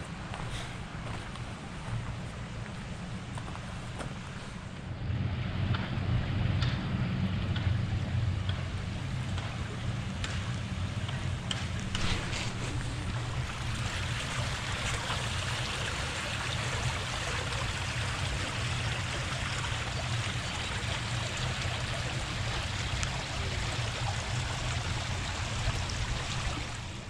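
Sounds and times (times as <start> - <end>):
low rumble: 5.0 - 16.1
stream rushing over rocks: 11.6 - 27.0.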